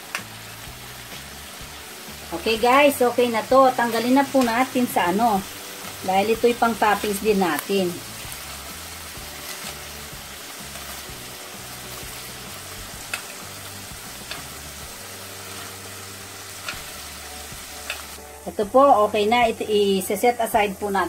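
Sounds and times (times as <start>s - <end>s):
shrimp sizzling in a frying pan: 0.0s - 21.0s
metal tongs clicking on pan: 13.0s - 14.7s, 16.5s - 17.1s, 17.8s - 18.2s.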